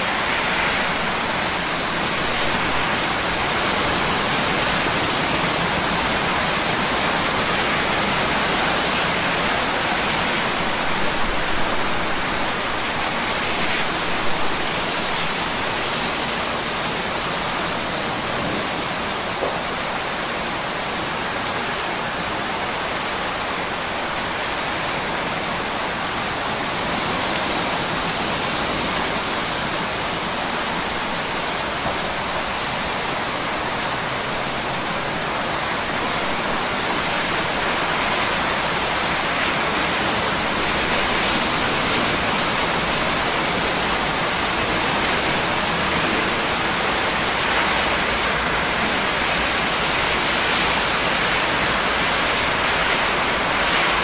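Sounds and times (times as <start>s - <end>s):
steady rain hiss: 0.0s - 54.0s
rain taps: 18.2s - 19.8s, 31.5s - 32.9s.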